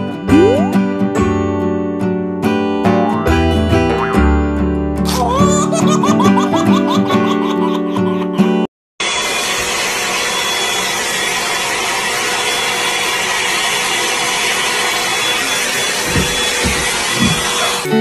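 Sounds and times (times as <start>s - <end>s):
hot air brush blowing: 9.0s - 18.0s.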